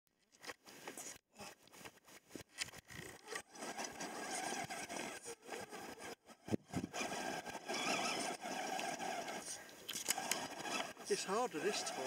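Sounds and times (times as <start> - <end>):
small electric motor whirring: 2.6 - 12.0.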